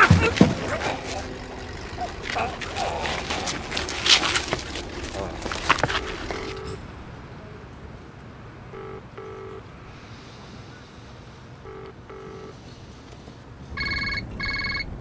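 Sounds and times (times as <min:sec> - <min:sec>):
mobile phone ringing: 0:05.7 - 0:06.8, 0:08.7 - 0:09.6, 0:11.6 - 0:12.6, 0:13.8 - 0:15.0
telephone ringing tone: 0:05.8 - 0:06.8, 0:08.7 - 0:09.7, 0:11.6 - 0:12.6, 0:13.8 - 0:15.0.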